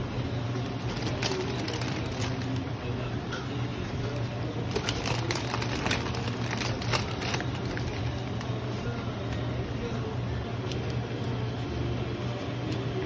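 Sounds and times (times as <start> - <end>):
low steady hum: 0.0 - 13.0.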